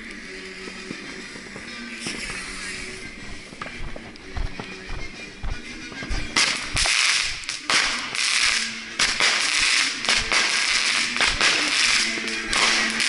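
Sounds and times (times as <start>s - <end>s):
fireworks bursting: 0.0s - 13.0s
fireworks cracking: 0.0s - 13.0s.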